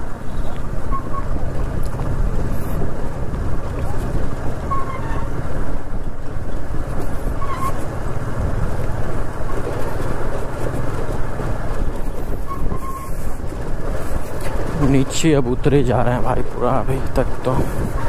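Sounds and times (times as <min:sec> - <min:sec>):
motorcycle engine running: 0:00.0 - 0:15.0
motorcycle rattling over rough road: 0:00.0 - 0:18.0.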